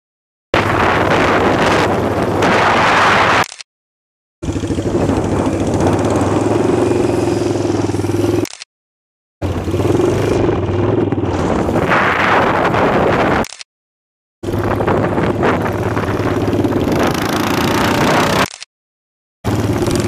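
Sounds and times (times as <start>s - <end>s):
motorcycle engine running: 0.6s - 2.8s, 4.4s - 8.6s, 9.4s - 13.3s, 14.4s - 18.6s, 19.4s - 20.0s
wind noise on microphone: 0.6s - 3.5s, 4.6s - 8.1s, 9.7s - 13.6s, 14.4s - 18.5s.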